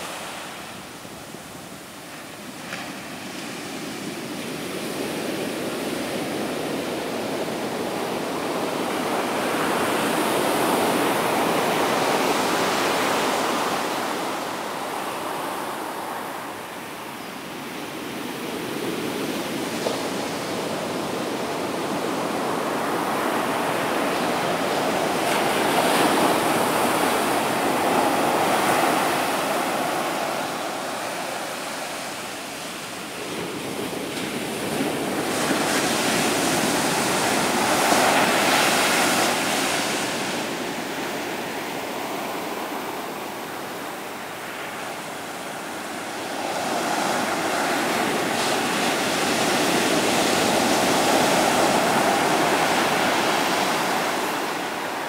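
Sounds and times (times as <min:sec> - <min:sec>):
ocean surf breaking on beach: 0:00.0 - 0:55.0.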